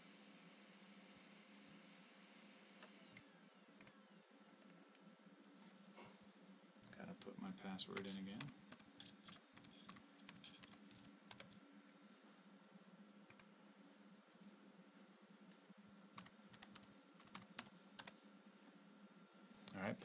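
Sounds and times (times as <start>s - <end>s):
faint low hum: 0.0s - 20.0s
keyboard keystrokes: 8.0s - 11.6s.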